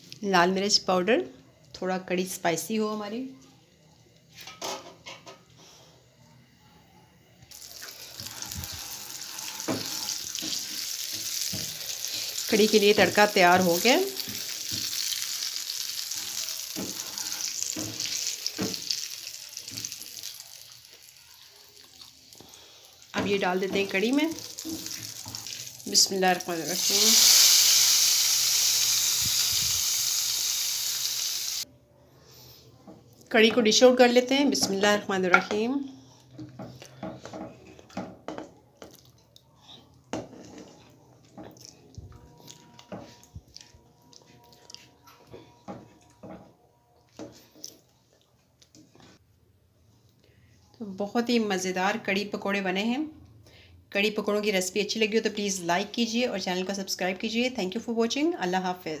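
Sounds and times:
hot oil sizzling in a pan: 7.5s - 31.7s.

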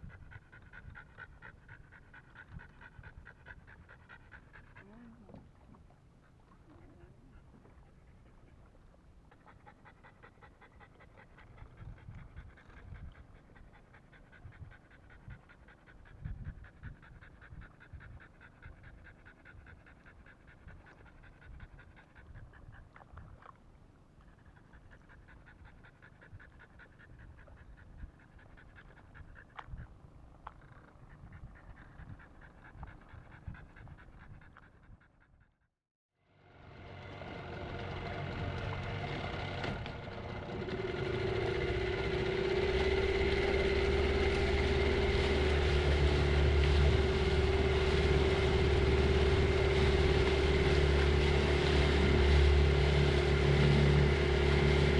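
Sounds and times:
dog panting rapidly: 0.0s - 5.2s, 9.5s - 22.9s, 24.4s - 29.9s, 30.6s - 35.6s, 40.7s - 51.2s
low thumps and rumble: 36.8s - 54.9s.

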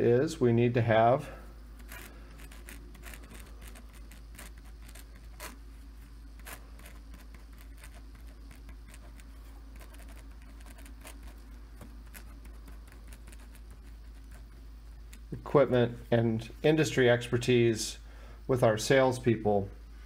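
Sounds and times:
steady low hum: 0.0s - 20.0s
pen scratching on paper: 1.8s - 5.6s, 6.4s - 14.6s.

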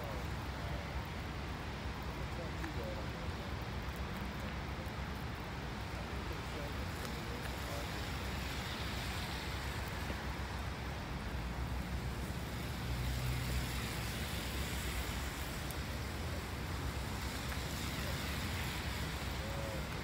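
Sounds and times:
train rumble and hiss: 6.2s - 20.0s.

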